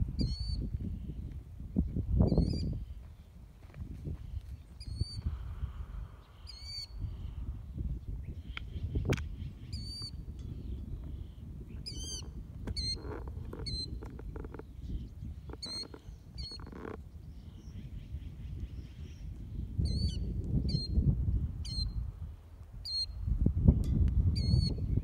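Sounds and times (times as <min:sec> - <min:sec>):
wind rumble on microphone: 0:00.0 - 0:25.0
high wavy bird calls: 0:08.3 - 0:19.3.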